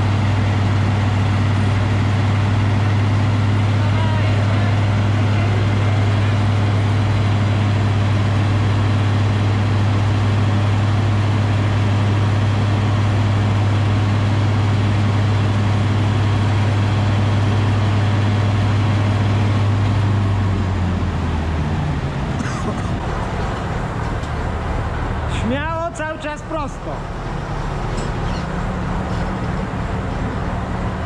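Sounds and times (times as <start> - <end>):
combine harvester diesel engine: 0.0 - 31.0.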